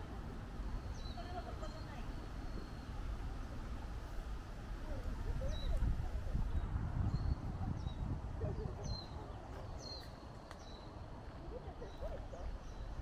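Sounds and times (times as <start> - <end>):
birds chirping high and thin: 0.6 - 3.4, 6.4 - 13.0.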